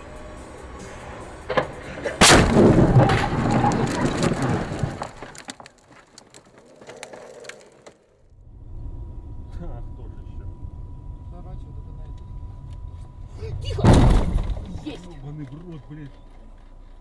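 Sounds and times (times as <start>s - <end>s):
car crash: 0.9s - 6.6s, 13.6s - 15.0s
crunching and rattling: 2.1s - 8.2s.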